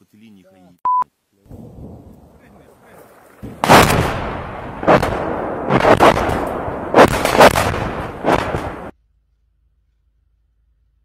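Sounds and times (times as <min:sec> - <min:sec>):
artillery blasts: 0:01.5 - 0:09.0.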